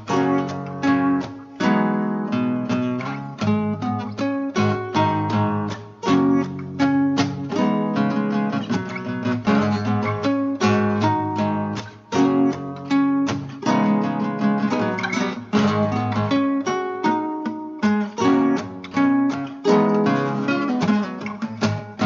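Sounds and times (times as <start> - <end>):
guitar picking notes and chords: 0.0 - 22.0.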